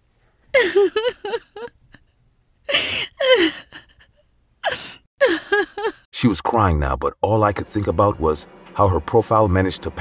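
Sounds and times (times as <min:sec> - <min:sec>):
woman sobbing: 0:00.5 - 0:02.1, 0:02.7 - 0:06.1.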